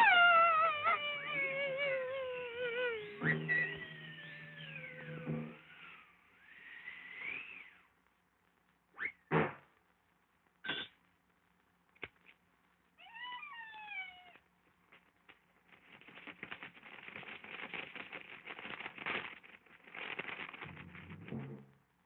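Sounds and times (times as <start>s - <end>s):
cartoon wailing meow-like cry: 0.0s - 5.3s, 13.0s - 14.4s
rapid fluttering clicks of bats: 15.3s - 21.1s.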